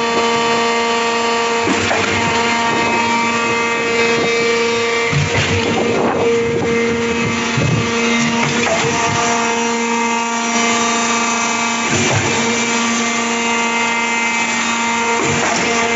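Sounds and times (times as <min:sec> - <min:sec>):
pump motor whining: 0:00.0 - 0:15.9
clunk: 0:01.6 - 0:10.2, 0:11.8 - 0:13.0, 0:14.9 - 0:15.9.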